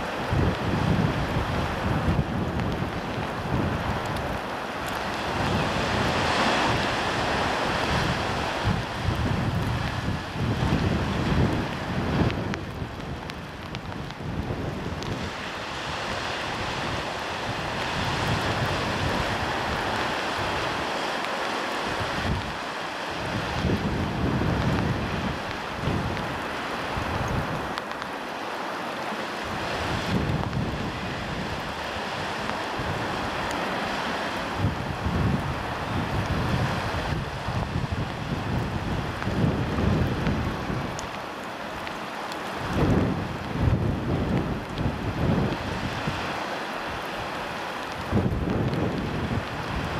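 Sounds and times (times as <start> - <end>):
wind buffeting microphone: 0.0 - 21.1, 21.8 - 28.1, 29.3 - 49.9
sea waves washing on shore: 0.0 - 49.9.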